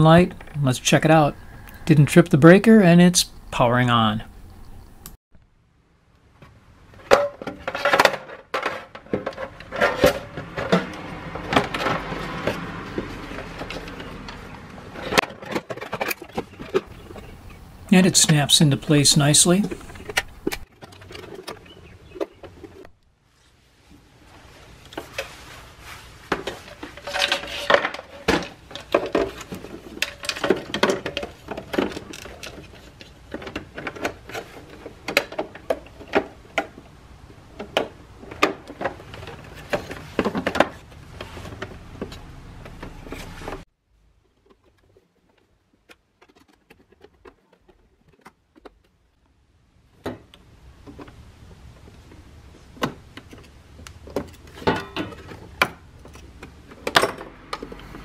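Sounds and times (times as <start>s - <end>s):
plastic parts clicking and rattling: 7.0s - 17.6s, 19.2s - 22.9s, 26.3s - 43.6s, 44.2s - 49.3s, 49.9s - 58.0s.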